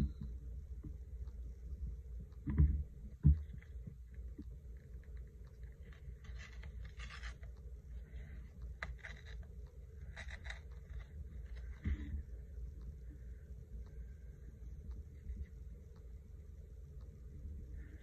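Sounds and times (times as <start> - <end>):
low steady hum: 0.0 - 18.0
paper rustling: 5.8 - 7.5.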